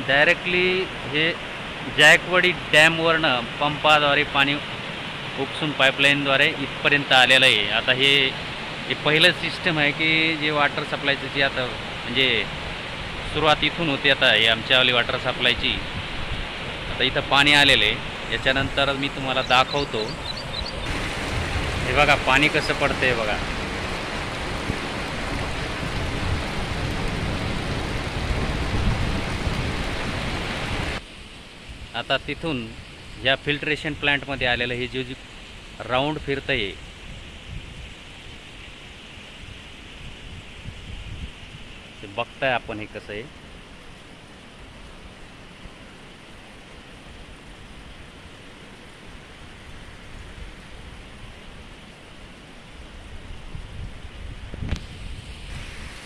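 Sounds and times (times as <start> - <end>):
water rushing down cascade: 0.0 - 56.0
wind rumble on microphone: 15.2 - 33.3, 35.6 - 42.0, 47.1 - 56.0.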